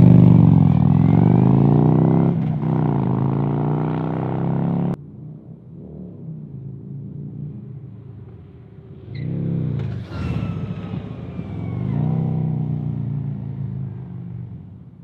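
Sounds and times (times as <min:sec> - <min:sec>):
motorcycle exhaust rumbling: 0:00.0 - 0:09.9.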